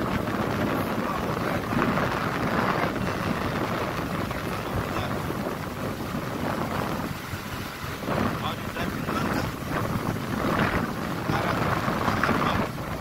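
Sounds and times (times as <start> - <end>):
auto-rickshaw running: 0.0 - 13.0
wind rushing: 0.0 - 13.0.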